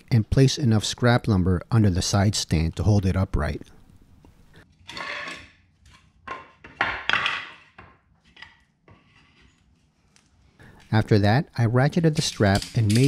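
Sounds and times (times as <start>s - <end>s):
boards scraping on concrete floor: 4.9s - 9.9s
wood blocks knocking: 6.2s - 8.1s.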